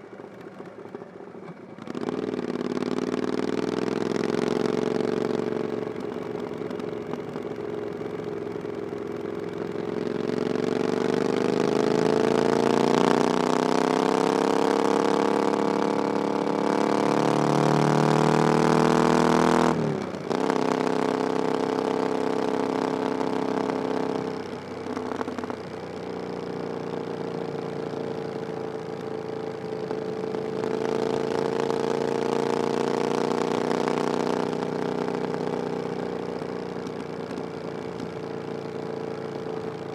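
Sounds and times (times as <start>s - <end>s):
motorcycle engine revving: 1.5s - 39.9s.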